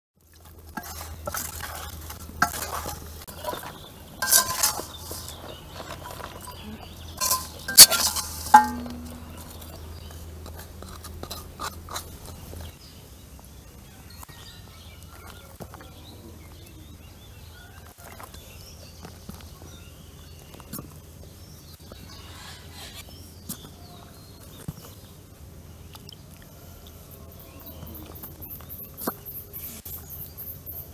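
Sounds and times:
spoon clinking on steel plate: 2.4s - 9.8s.

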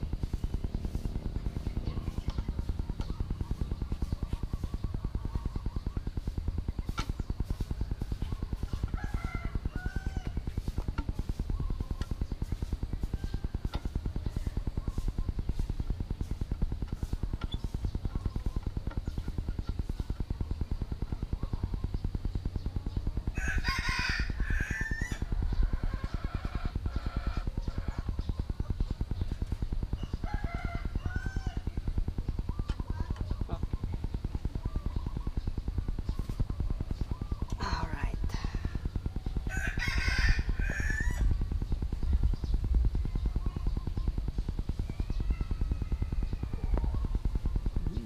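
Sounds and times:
fast low throb: 0.0s - 48.0s
rapid low pulsing: 0.0s - 48.0s
rooster crowing: 9.0s - 10.4s, 23.3s - 25.2s, 30.2s - 31.6s, 39.5s - 41.3s.

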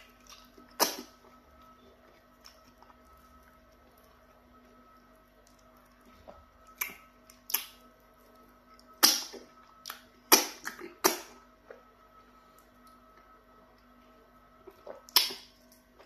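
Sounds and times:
wet mouth and lip smacks: 6.7s - 7.8s, 15.0s - 15.5s.

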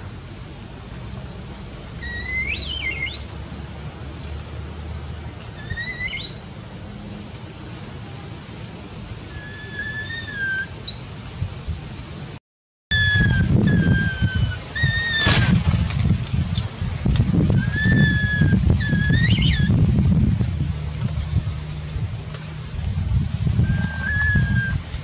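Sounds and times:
baby monkey crying: 9.3s - 11.1s.

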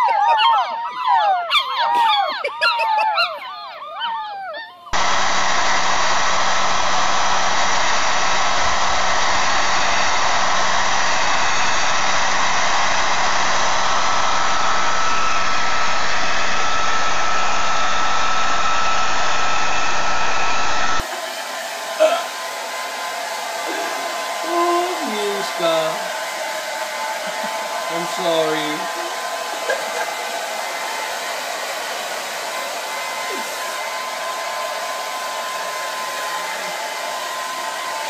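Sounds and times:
puppies howling: 0.0s - 5.0s, 26.8s - 31.0s
hair dryer running with whistle: 0.0s - 38.0s.

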